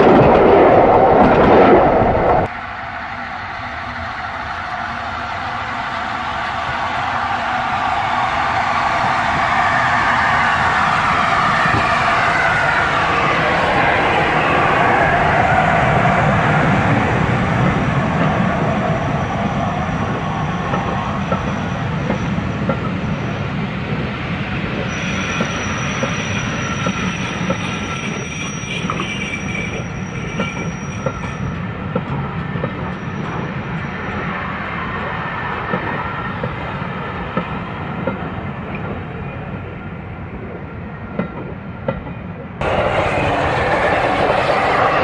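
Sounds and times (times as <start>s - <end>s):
steam locomotive passing: 0.0s - 45.0s
train wheels clicking on rails: 4.7s - 39.1s
high wheel squeal: 24.8s - 31.7s.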